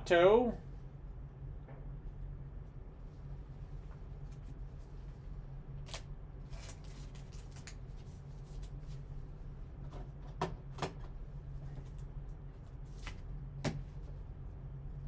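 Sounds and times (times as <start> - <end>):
low hum: 0.0 - 15.0
plastic sleeves rustling: 5.9 - 9.0.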